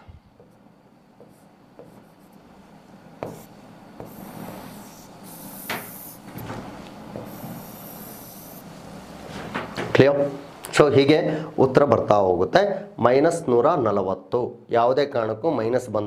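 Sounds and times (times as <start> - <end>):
pen scratching on whiteboard: 1.2 - 2.4, 3.2 - 6.4, 7.1 - 8.7
pen tip knocks: 3.2 - 4.2.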